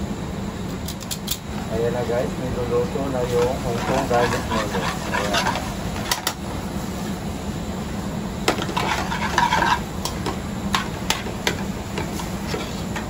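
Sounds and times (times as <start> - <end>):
steady low hum: 0.0 - 13.0
metal tongs scraping frying pan: 3.4 - 6.1, 8.6 - 9.9.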